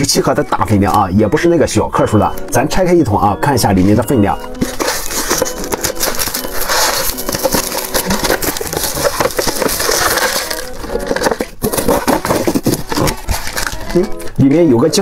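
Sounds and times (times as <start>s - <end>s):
plastic shrink wrap crinkling: 4.5s - 14.4s.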